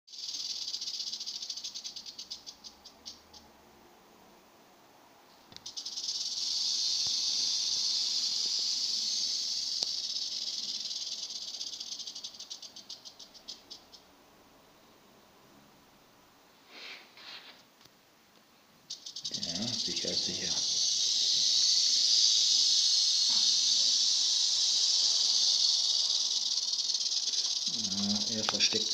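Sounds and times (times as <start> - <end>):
rattlesnake tail rattle buzzing: 0.1 - 3.0, 5.6 - 13.8, 18.9 - 28.9.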